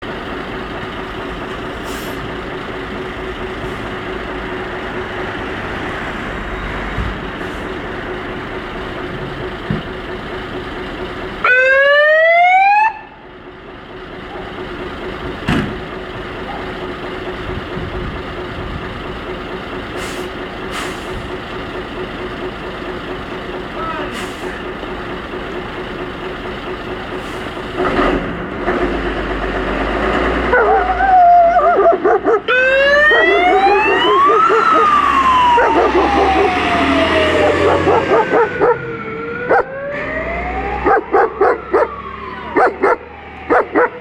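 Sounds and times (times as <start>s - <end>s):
diesel engine idling: 0.0s - 44.0s
siren burst rising in pitch: 11.4s - 13.2s, 30.6s - 31.9s, 32.5s - 44.0s.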